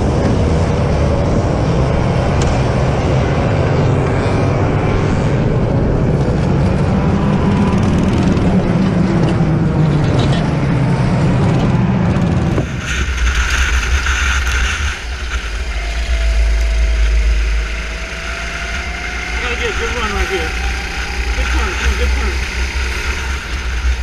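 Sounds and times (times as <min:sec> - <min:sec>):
go-kart engine: 0:00.0 - 0:24.0
steady engine drone: 0:00.0 - 0:24.0.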